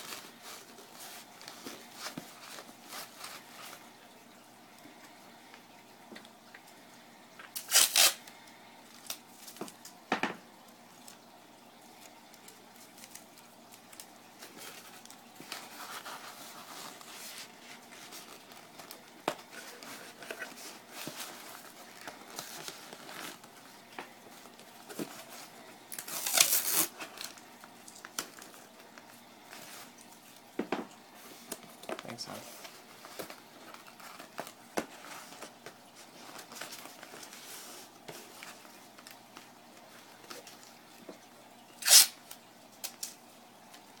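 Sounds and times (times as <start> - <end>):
masking tape pulled off roll: 7.6 - 8.2, 26.0 - 27.0, 41.8 - 42.4.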